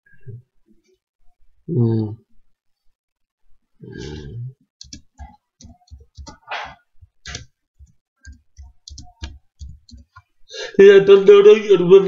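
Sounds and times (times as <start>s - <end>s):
keyboard typing clicks: 4.8s - 10.3s.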